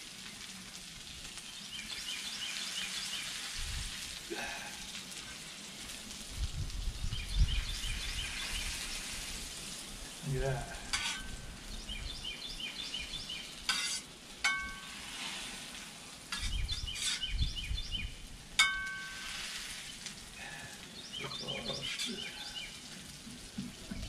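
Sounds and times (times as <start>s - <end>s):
potatoes sizzling on a griddle: 0.0s - 24.0s
metal scraping on griddle: 8.0s - 11.7s, 13.3s - 17.7s, 18.5s - 20.3s, 21.2s - 24.0s
ringing metal clinks: 18.6s - 19.2s.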